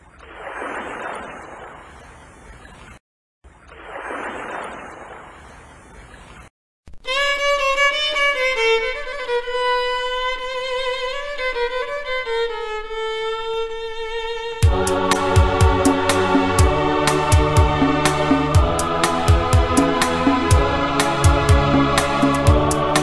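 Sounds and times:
violin melody with vibrato: 7.0 - 19.0.

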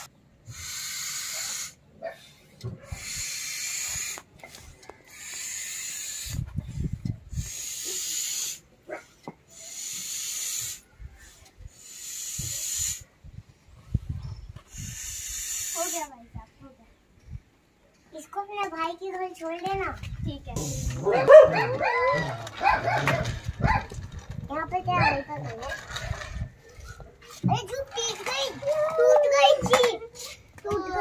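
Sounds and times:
hand air pump hissing: 0.0 - 1.8, 3.0 - 8.6, 9.5 - 13.1, 14.7 - 16.1, 20.6 - 21.0.

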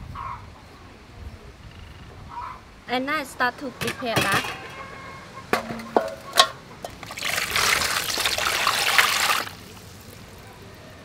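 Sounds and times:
water splashing in metal basin: 5.6 - 10.2.

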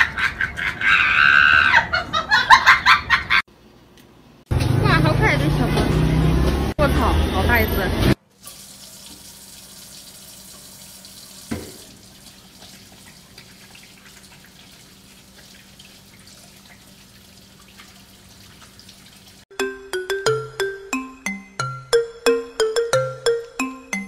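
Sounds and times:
tap water splashing: 10.4 - 19.4
music: 19.5 - 24.0.

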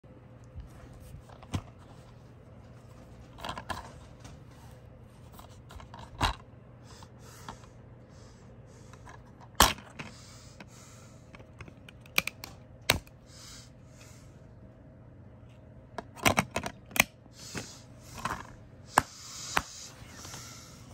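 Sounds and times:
soft rubbing and sliding: 0.4 - 5.8
plastic cases clicking and clacking: 16.0 - 17.1.

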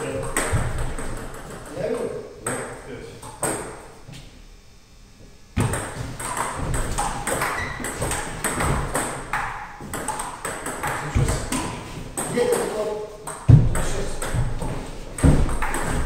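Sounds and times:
table tennis ball clicking and bouncing: 0.1 - 1.8, 5.6 - 16.0.

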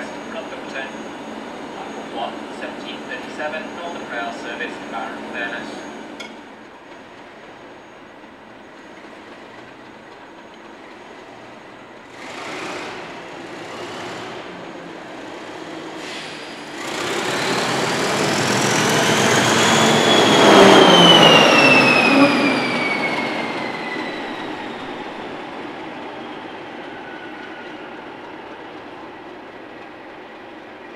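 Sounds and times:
high squeal: 0.0 - 6.1, 15.6 - 28.6
diesel locomotive engine rumble: 0.0 - 30.9.

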